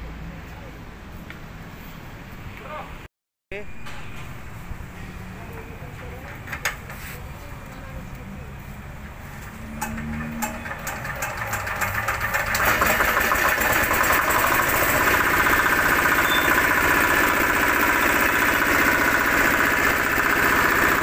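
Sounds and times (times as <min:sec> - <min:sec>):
diesel engine hand-cranked and running: 0:05.5 - 0:07.2, 0:09.4 - 0:21.0.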